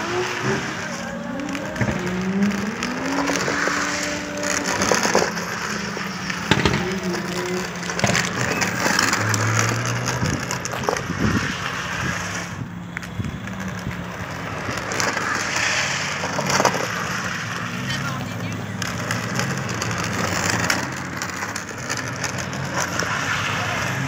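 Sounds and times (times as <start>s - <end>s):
wheels scraping on asphalt: 0.0s - 24.0s
knocks: 6.5s - 7.1s.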